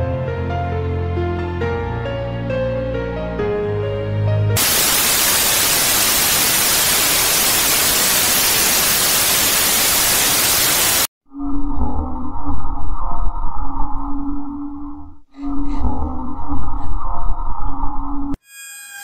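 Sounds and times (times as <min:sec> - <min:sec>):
white-noise static: 0:04.6 - 0:11.1.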